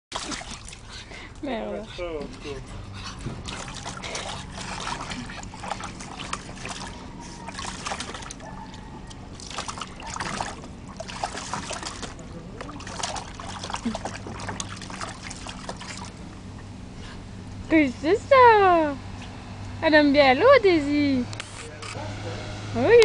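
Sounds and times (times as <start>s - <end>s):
water splashing in paddling pool: 0.1s - 16.7s.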